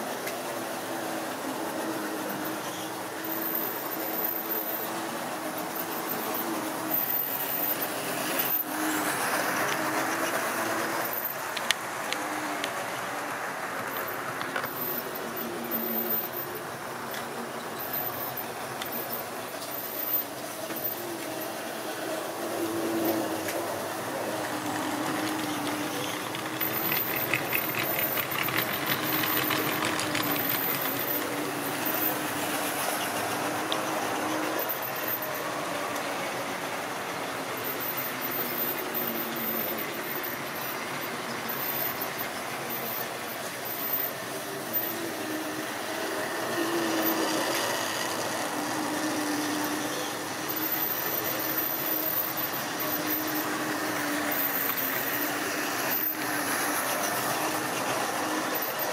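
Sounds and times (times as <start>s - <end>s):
model train motor humming: 0.0s - 58.9s
coaches clicking over rail joints: 5.5s - 21.7s, 23.0s - 48.8s.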